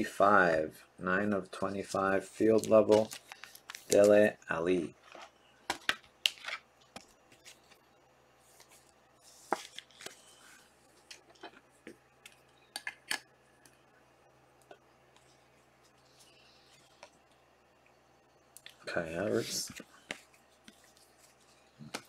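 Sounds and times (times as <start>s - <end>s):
trading cards being flipped through: 2.4s - 4.3s, 8.5s - 10.4s.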